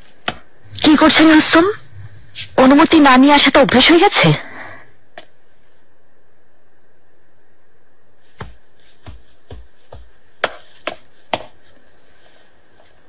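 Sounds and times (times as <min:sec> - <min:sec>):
faint room hum: 0:00.0 - 0:13.0
hard-soled footsteps: 0:08.3 - 0:13.0.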